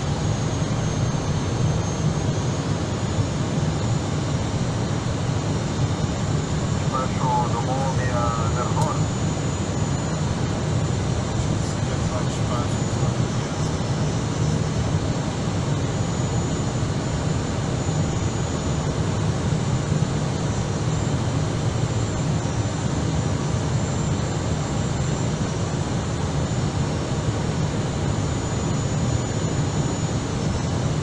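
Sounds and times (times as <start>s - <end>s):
airflow and engine rush: 0.0s - 31.0s
thin high whine: 5.5s - 10.3s.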